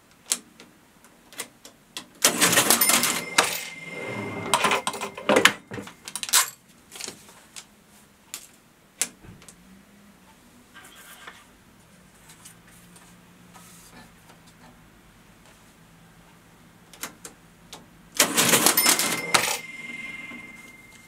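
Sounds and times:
cash register clicking and clattering: 2.2s - 6.6s, 18.2s - 21.0s.

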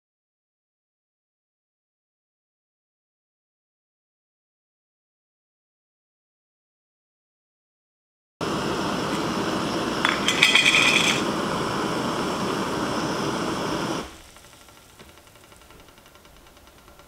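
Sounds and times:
gas stove burner roaring: 8.4s - 17.0s
metal pot lid clinking: 10.0s - 11.3s.

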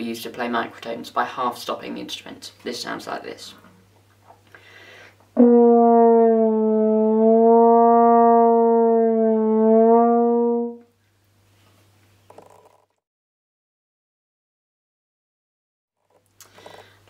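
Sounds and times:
french horn sustained note: 5.4s - 10.9s.

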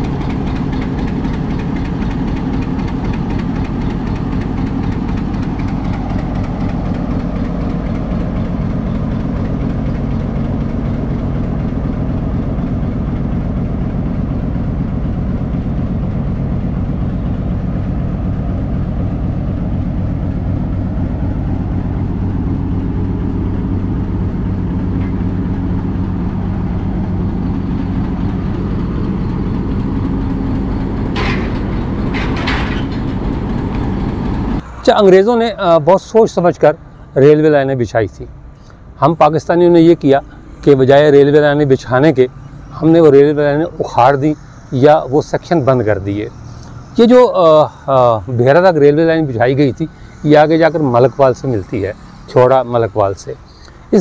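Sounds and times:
locomotive engine idling: 0.0s - 54.0s
sharp metallic clanks: 19.6s - 35.4s.

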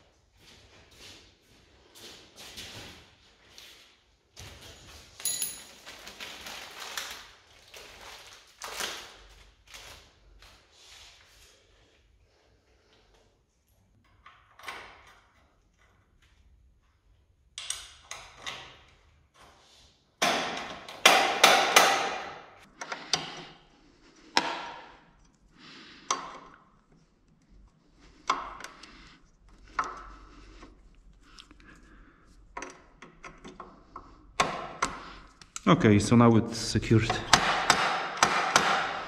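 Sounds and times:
tools and metal parts clattering: 4.4s - 6.3s.

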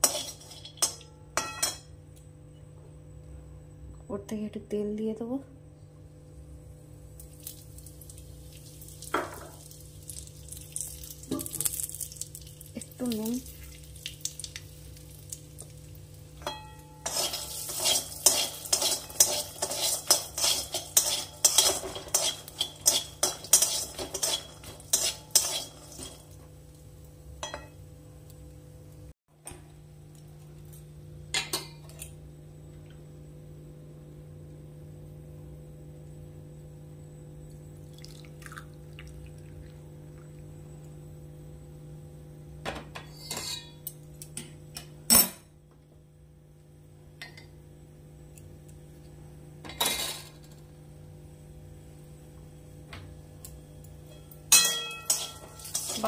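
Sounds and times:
spatula scraping peanuts in a pan: 0.0s - 0.9s, 17.0s - 26.2s, 55.0s - 56.0s
steady low hum: 0.0s - 56.0s.

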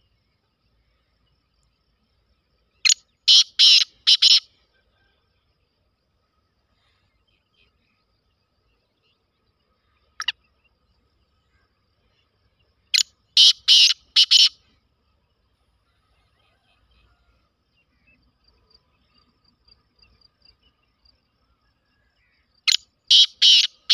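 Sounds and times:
small birds chirping: 2.6s - 4.5s, 6.8s - 14.6s, 22.2s - 23.9s
francolin calling: 2.7s - 5.1s, 9.8s - 10.8s, 11.4s - 14.8s, 22.1s - 23.9s.

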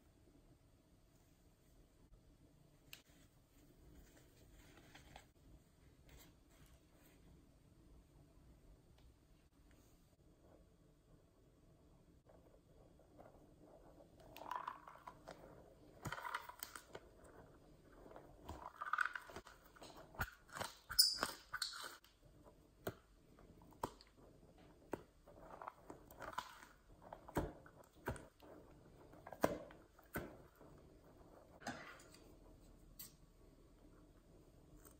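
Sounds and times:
rubber toy squishing: 14.0s - 31.6s.

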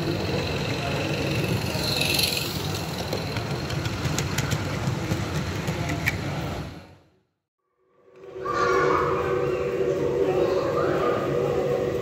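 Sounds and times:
model steam locomotive running: 0.0s - 6.5s.

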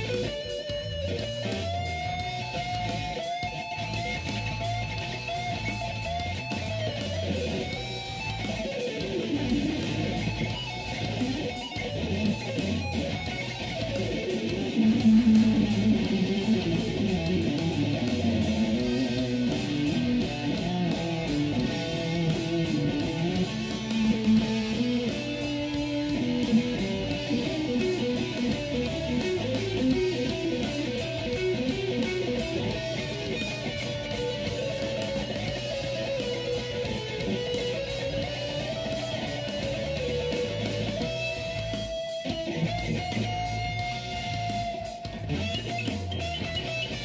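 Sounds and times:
electric guitar lead with slides: 0.0s - 47.0s.

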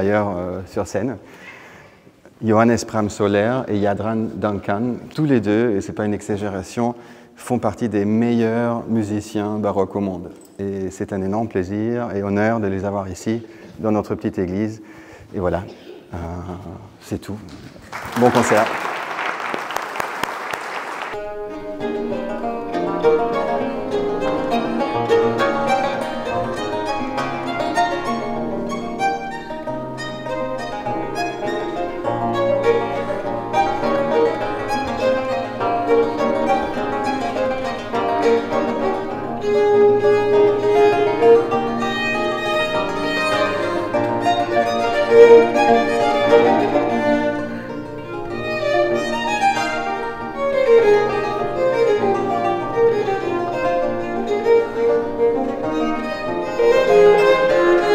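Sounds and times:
bowed violin: 21.1s - 57.9s
plucked lute: 21.2s - 57.9s.

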